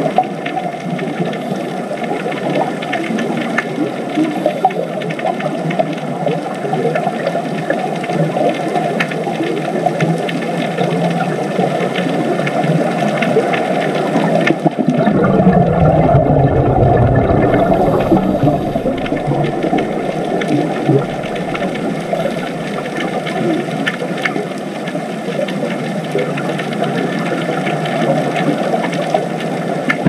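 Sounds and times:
muffled underwater noise: 14.8s - 26.1s
deep rumble: 14.9s - 23.9s.

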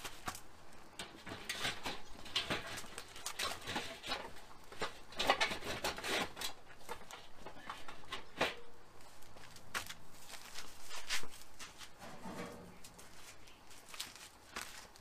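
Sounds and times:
metal clanks and scrapes: 1.0s - 8.8s, 11.9s - 13.1s.

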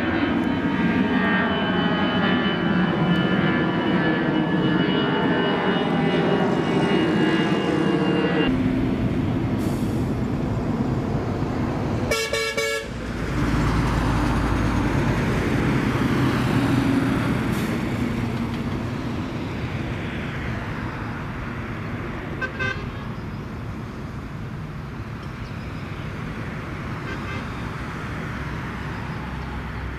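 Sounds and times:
jet airliner passing overhead: 0.0s - 29.9s
car horn honking: 12.1s - 12.9s, 22.4s - 23.0s.

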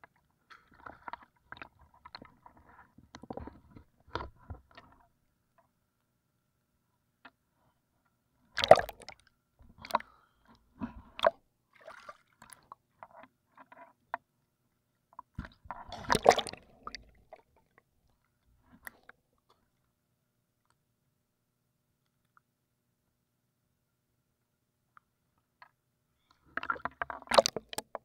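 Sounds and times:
water splashing: 8.6s - 9.2s, 11.2s - 12.6s, 15.8s - 17.5s.

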